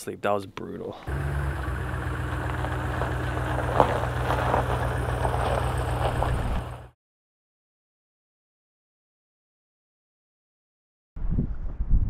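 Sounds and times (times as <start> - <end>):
pickup truck engine rumbling: 1.1 - 7.0.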